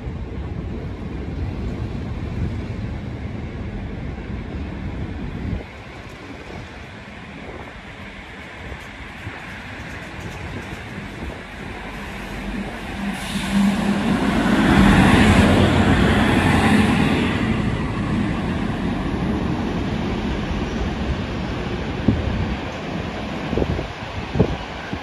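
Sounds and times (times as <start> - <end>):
electric train rumble and wheel noise: 0.0 - 25.0.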